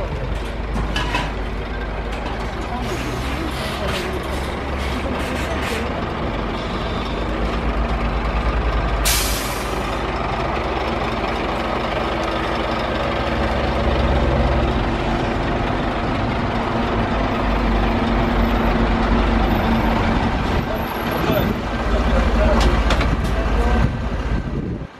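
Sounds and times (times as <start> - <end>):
diesel engine running: 0.0 - 24.9
air brake hiss: 9.0 - 9.8.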